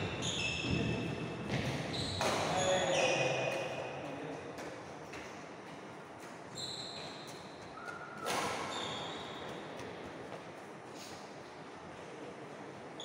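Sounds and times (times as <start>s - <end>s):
shoes squeaking on wooden floor: 6.4s - 9.8s.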